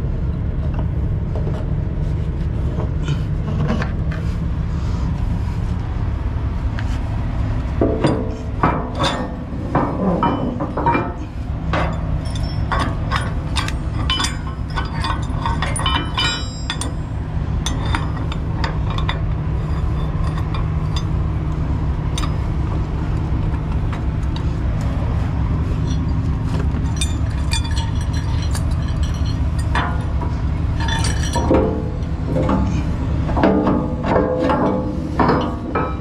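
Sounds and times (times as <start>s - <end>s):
engine idling: 0.0s - 36.0s
steel chains clinking: 8.0s - 22.7s, 25.5s - 36.0s.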